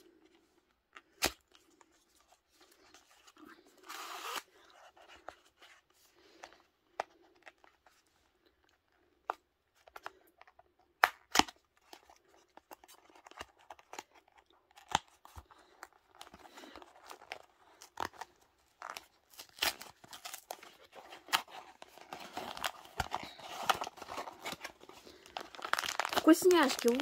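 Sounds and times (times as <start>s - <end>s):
cardboard clicks and snaps: 11.0s - 12.0s
papery rustling: 15.6s - 27.0s.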